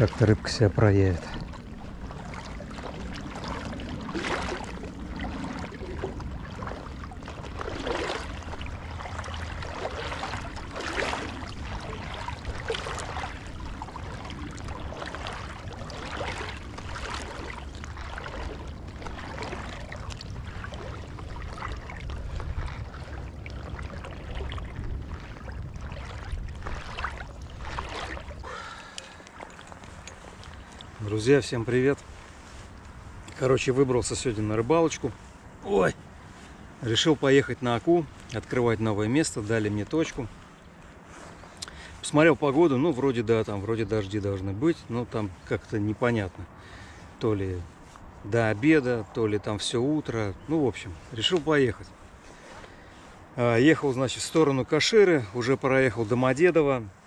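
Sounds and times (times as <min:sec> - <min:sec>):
steady low rumble: 0:00.0 - 0:37.0
water lapping and splashing: 0:00.0 - 0:57.0.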